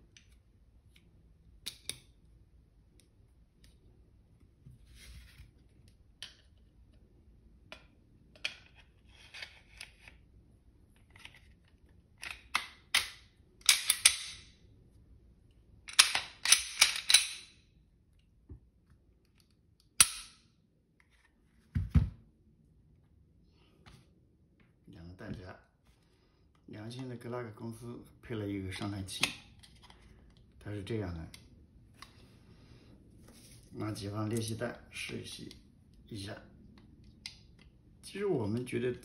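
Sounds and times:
pistol slide scraping and clicking: 12.2s - 14.5s, 15.9s - 17.6s.

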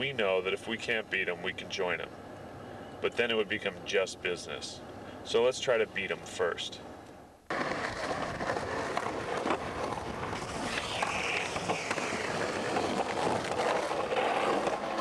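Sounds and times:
skateboard wheels rolling on concrete: 7.4s - 15.0s
skateboard clacks: 7.5s - 15.0s.

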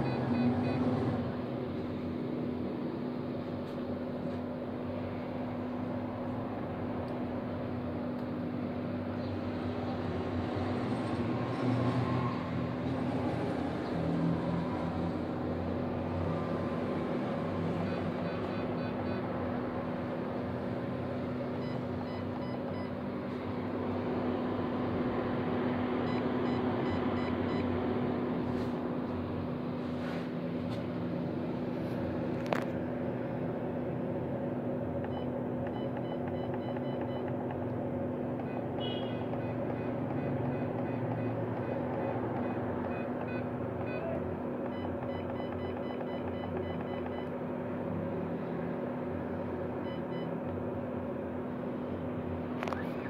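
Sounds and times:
constant hum: 12.4s - 53.0s
cooling fan whirring: 12.4s - 53.0s.

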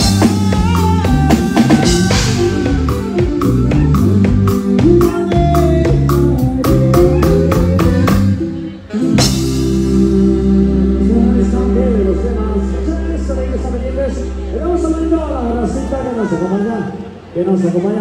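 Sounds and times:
drum kit beat: 0.0s - 11.3s
band hitting loud chord: 0.0s - 15.6s
live dance band playing: 0.0s - 17.9s.

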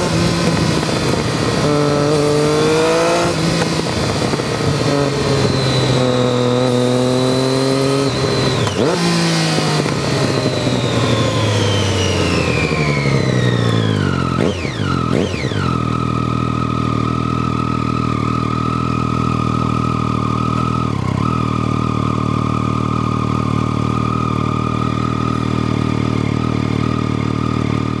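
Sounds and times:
motorcycle engine revving: 0.0s - 28.0s.

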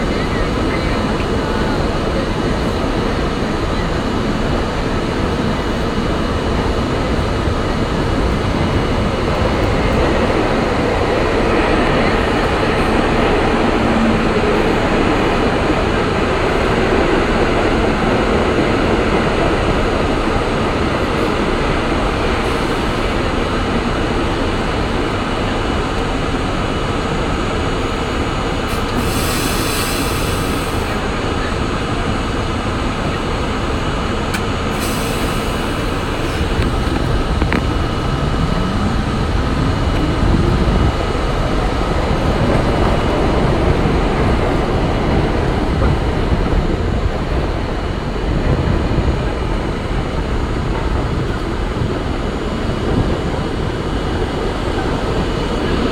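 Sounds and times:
subway train wheels rumbling: 0.0s - 55.9s.

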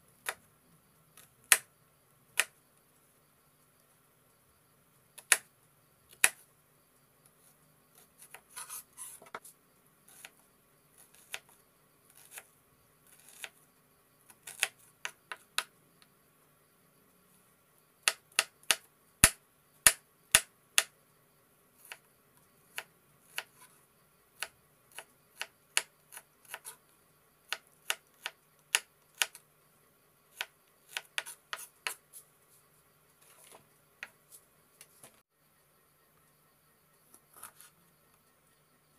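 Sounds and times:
knife chopping on wooden board: 30.4s - 32.0s.

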